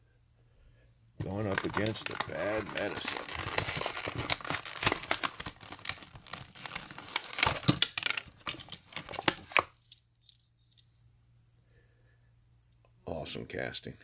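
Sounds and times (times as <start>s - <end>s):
plastic packaging crinkling: 1.2s - 9.8s.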